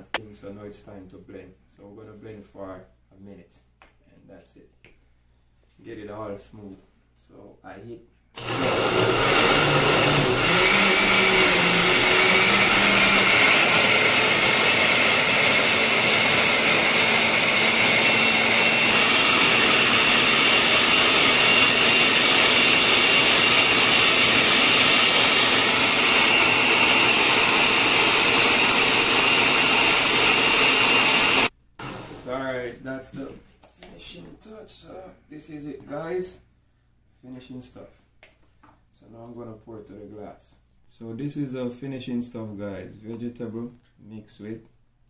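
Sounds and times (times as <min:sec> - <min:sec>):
blender motor whine: 0:08.4 - 0:32.3.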